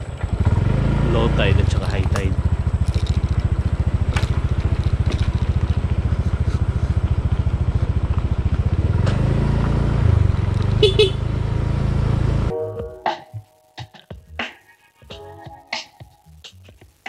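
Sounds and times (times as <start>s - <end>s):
scooter engine chugging: 0.0s - 11.3s.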